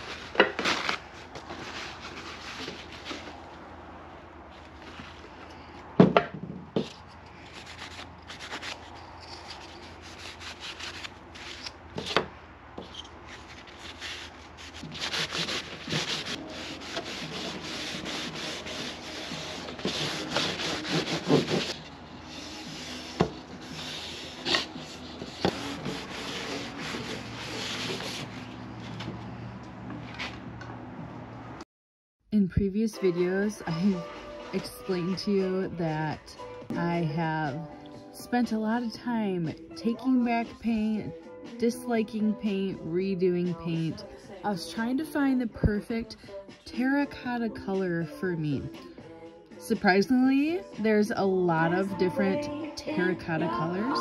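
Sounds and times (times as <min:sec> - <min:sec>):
paper towel rubbing on wood: 0:00.0 - 0:03.4, 0:13.2 - 0:28.6.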